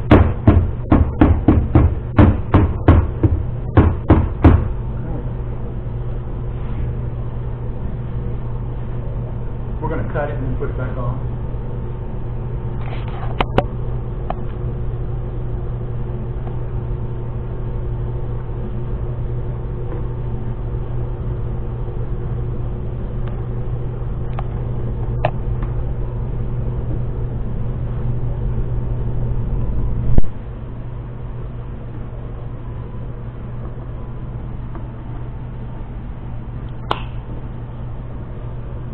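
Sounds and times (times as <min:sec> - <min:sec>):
low mechanical hum: 0:00.0 - 0:38.9
loud knock: 0:00.1 - 0:04.8.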